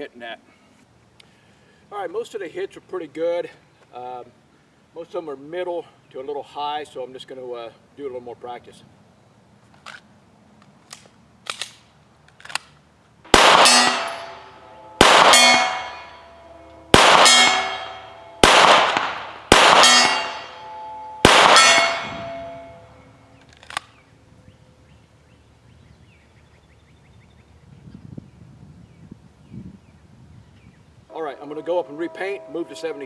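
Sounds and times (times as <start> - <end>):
gun handling clicks: 9.7 - 12.8, 23.4 - 24.0
pistol shots: 13.3 - 16.1, 16.9 - 22.6
steel target clanging: 13.3 - 23.4.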